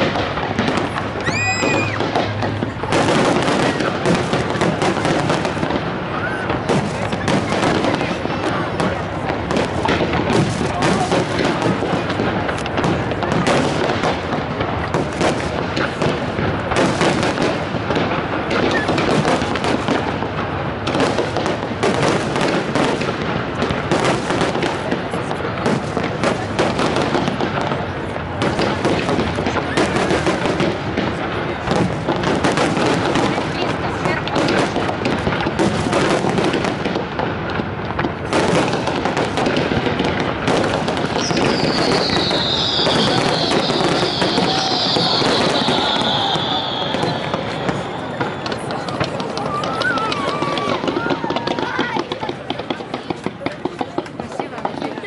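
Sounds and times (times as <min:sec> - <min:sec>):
fireworks bursting: 0:00.0 - 0:55.0
falling firework whistle: 0:01.1 - 0:02.5, 0:41.1 - 0:51.7.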